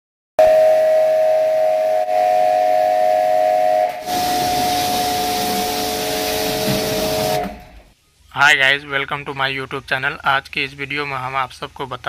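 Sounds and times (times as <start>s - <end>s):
pressure washer pump whining: 4.0s - 7.9s
water jet hissing against metal: 4.0s - 7.9s.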